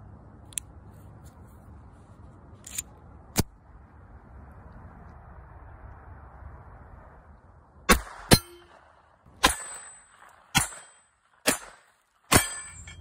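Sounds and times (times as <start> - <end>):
pistol shots: 7.9 - 12.6
steel plate clanging and ringing: 8.3 - 8.7, 12.3 - 13.0.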